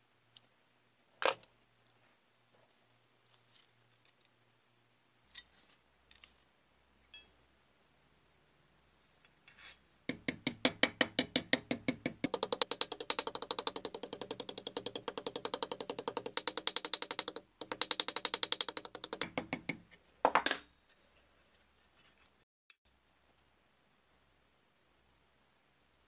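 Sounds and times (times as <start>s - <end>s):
small hammer tapping thin steel: 10.1s - 20.0s.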